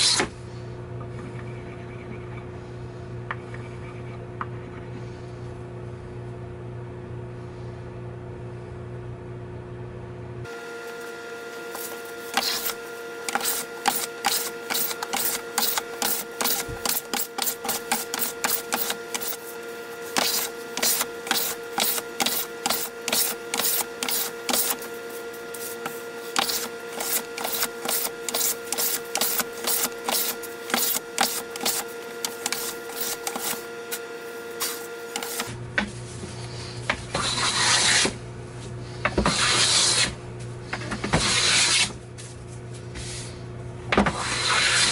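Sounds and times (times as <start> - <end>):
workshop hum: 0.0 - 44.9
hand plane scraping wood: 11.0 - 24.9, 37.2 - 38.2, 39.3 - 40.1, 44.1 - 44.9.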